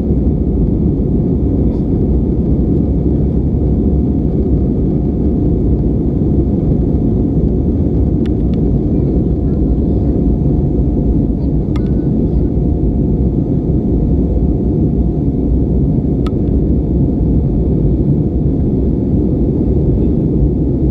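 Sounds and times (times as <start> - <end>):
airplane cabin rumble: 0.0 - 20.9
faint clicks: 11.7 - 12.0.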